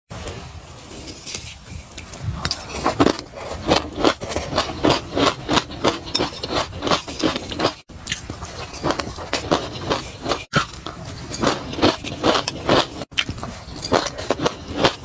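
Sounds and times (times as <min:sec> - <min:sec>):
crunchy eating of seeds: 0:02.4 - 0:15.0
metal spoon scraping seeds in bowl: 0:02.5 - 0:10.5, 0:11.1 - 0:15.0.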